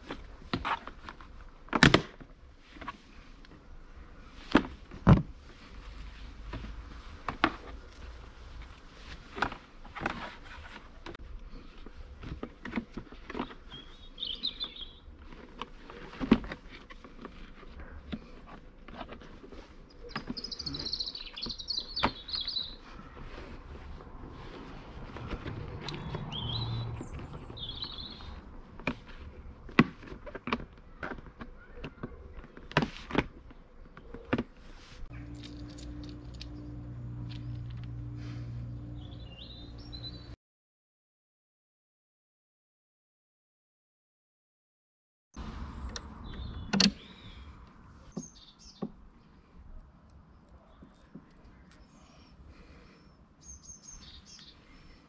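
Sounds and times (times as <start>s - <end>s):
birds chirping: 13.0s - 16.0s, 17.8s - 28.9s, 33.4s - 40.4s, 45.5s - 55.0s
steady low hum: 35.0s - 40.4s.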